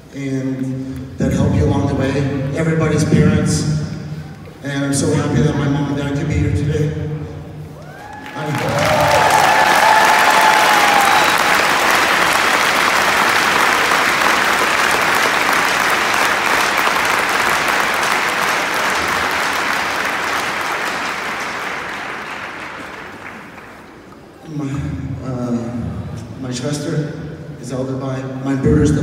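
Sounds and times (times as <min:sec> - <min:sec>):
crowd applauding: 0:07.8 - 0:24.4.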